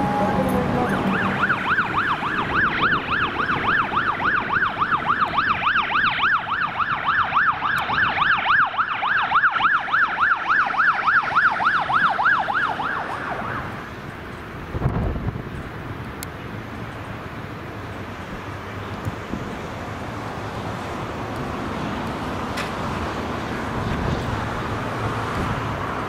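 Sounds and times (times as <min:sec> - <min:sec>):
fire truck siren yelp: 0:00.0 - 0:15.8.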